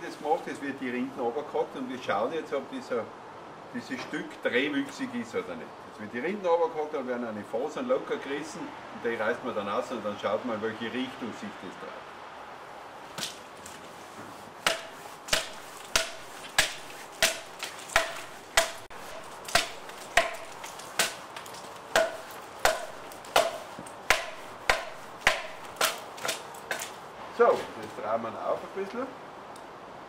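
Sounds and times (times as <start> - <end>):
axe chopping bark off log: 14.6 - 26.9.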